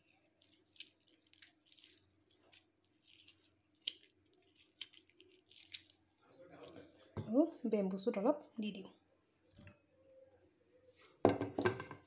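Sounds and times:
wet squelches of lemon squeezed: 0.0s - 7.2s.

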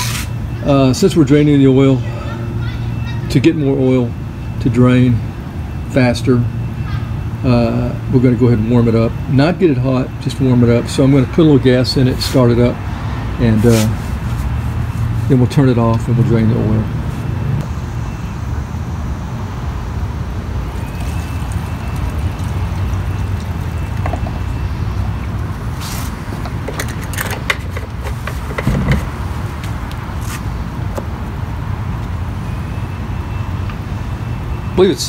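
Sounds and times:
low outdoor rumble: 13.4s - 32.5s.

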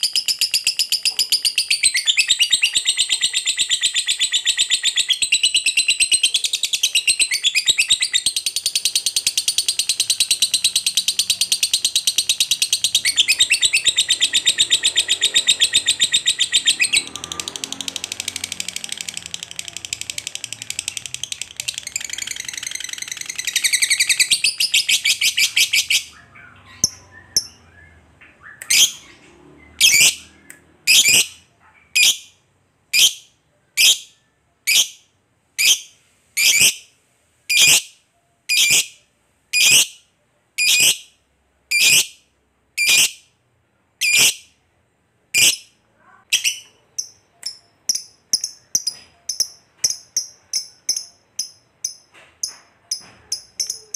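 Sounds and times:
lovebird chattering trill: 0.0s - 17.5s, 18.1s - 27.8s, 42.8s - 43.2s, 44.0s - 44.5s, 46.3s - 53.9s
sharp high bird chirps: 0.0s - 43.4s, 45.4s - 53.9s.

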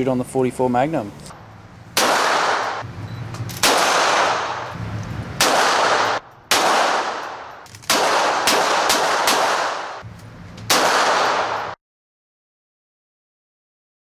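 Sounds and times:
pistol shots echoing indoors: 2.0s - 2.8s, 3.6s - 4.7s, 5.4s - 10.0s, 10.7s - 11.8s.

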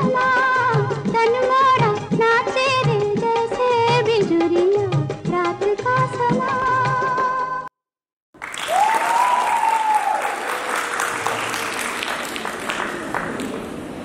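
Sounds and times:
audience applause: 8.4s - 14.0s
person whooping: 8.7s - 10.6s.

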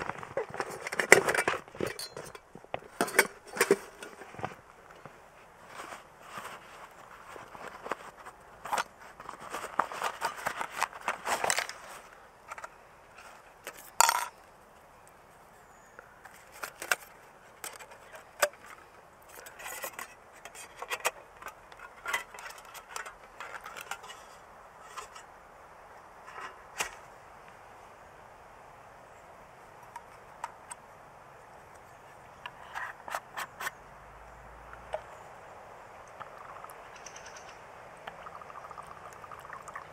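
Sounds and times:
metal cookware clinking and knocking: 1.8s - 2.4s.

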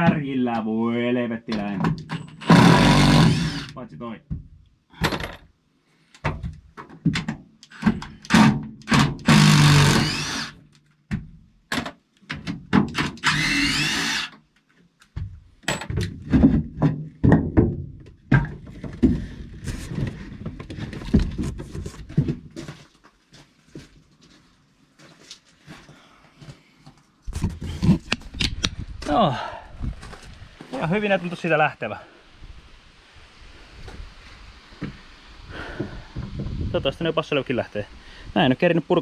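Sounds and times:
power drill whining: 2.4s - 3.8s, 8.4s - 10.6s, 13.1s - 14.4s
wood knocking and clunking: 6.2s - 9.0s, 15.1s - 22.8s.

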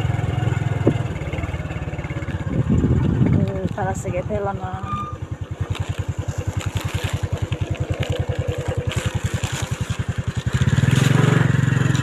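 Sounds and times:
small engine puttering: 0.0s - 12.0s.

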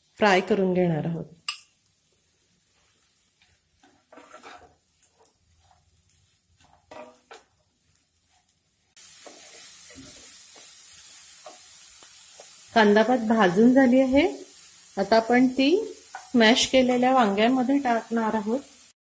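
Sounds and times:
oil sizzling: 0.0s - 19.0s
wooden spatula scraping a pan: 2.5s - 10.7s.

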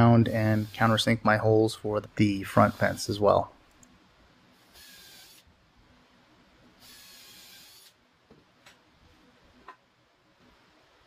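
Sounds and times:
drill cutting into wood: 4.8s - 5.4s, 6.8s - 8.0s.

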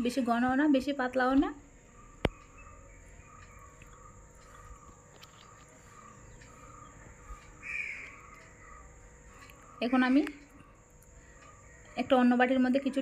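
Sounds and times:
steady high whine: 0.0s - 13.0s
small animal chirping: 1.9s - 12.2s.

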